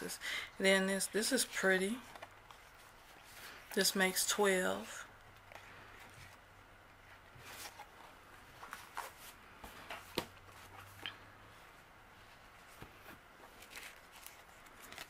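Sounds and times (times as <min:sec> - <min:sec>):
paper cards rustling: 0:01.9 - 0:03.9, 0:07.3 - 0:11.2, 0:12.6 - 0:15.0.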